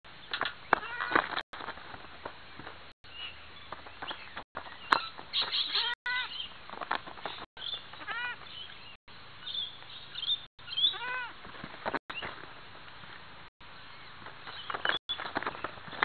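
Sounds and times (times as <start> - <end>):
goat kids bleating: 5.6 - 6.3, 8.0 - 8.4, 10.8 - 11.4.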